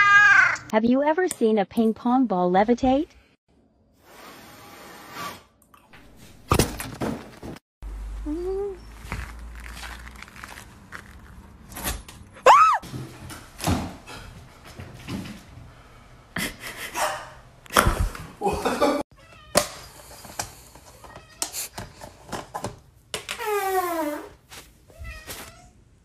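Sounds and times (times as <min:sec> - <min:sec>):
rustling: 0:08.8 - 0:11.6, 0:24.4 - 0:25.6.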